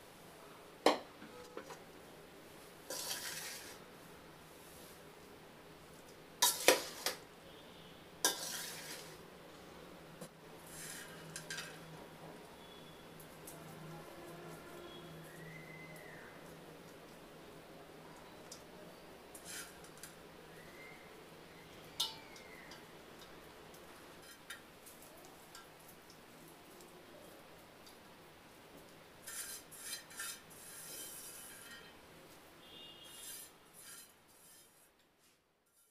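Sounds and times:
fried onions crackling rustle: 2.4s - 7.3s, 8.2s - 9.3s, 10.6s - 17.6s, 18.2s - 35.9s
ladle scraping through rice: 2.9s - 3.8s, 8.3s - 9.2s, 10.7s - 11.8s, 19.4s - 19.9s, 29.2s - 32.0s, 33.0s - 35.9s
metal ladle clanking against pot: 22.0s - 23.3s.

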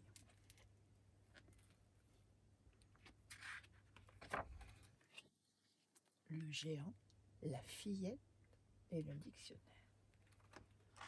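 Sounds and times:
soft paper rustle: 0.0s - 6.2s, 10.1s - 11.0s.

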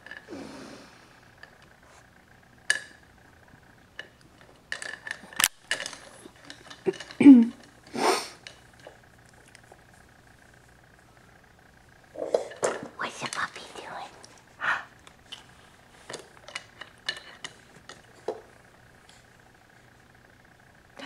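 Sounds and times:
breathy hiss: 0.1s - 2.1s, 7.8s - 8.5s, 13.0s - 16.2s
plastic toys clicking and clattering: 4.0s - 9.7s, 12.2s - 13.5s, 15.0s - 19.3s.

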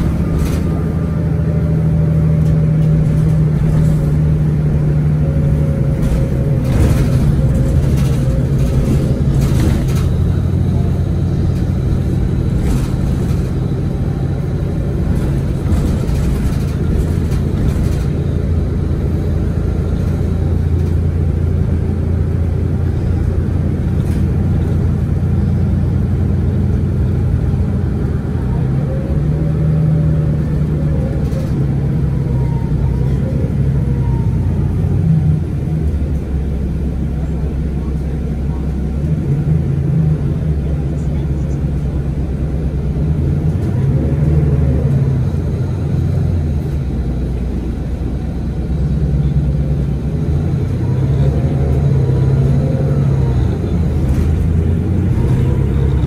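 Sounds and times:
bus diesel engine running: 0.0s - 56.0s.

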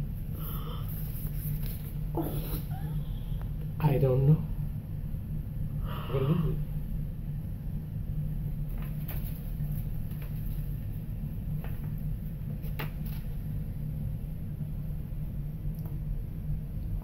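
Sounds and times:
low room hum: 0.0s - 17.0s
paper rustling and clicks: 8.7s - 10.7s, 12.6s - 13.3s.

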